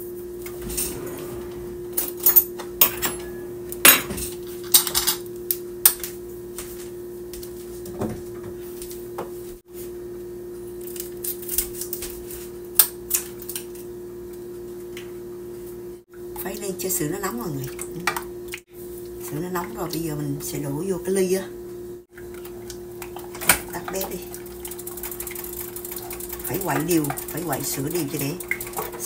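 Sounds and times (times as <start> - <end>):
steady hum: 0.0 - 9.2
dishes and utensils clattering: 0.5 - 5.2.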